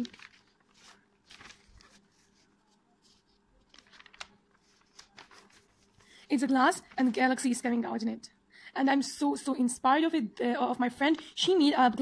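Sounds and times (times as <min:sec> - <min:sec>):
faint paper rustling: 0:00.0 - 0:07.6.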